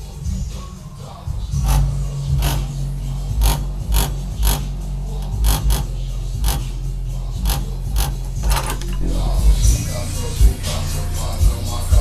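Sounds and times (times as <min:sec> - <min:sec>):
bass-heavy music: 0:00.0 - 0:12.0
rattling clicks from bass vibration: 0:07.4 - 0:09.7.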